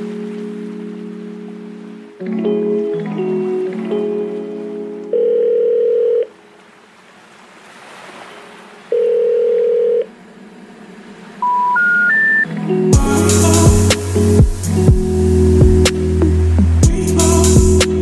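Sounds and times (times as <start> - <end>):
telephone ringing tone: 5.1 - 6.4, 8.9 - 10.1, 11.4 - 12.5
short rising beeps: 11.4 - 12.5.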